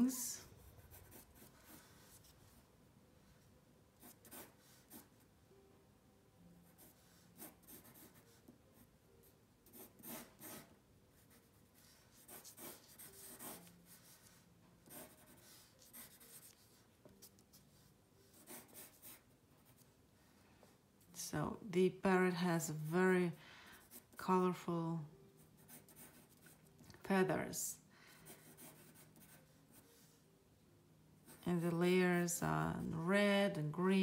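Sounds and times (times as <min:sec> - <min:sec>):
pencil scratching on paper: 0:00.4 - 0:02.6, 0:04.0 - 0:05.2, 0:06.6 - 0:08.9, 0:09.6 - 0:19.9, 0:25.6 - 0:26.7, 0:28.2 - 0:30.2, 0:31.2 - 0:31.7.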